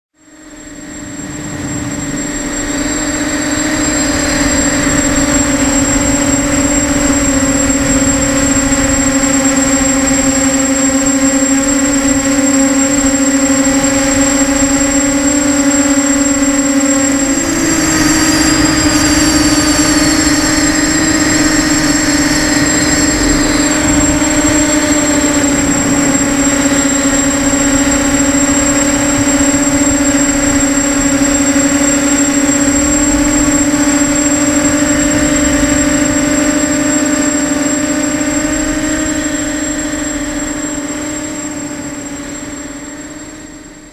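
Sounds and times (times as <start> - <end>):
quadcopter motors whining: 0.2 - 43.9.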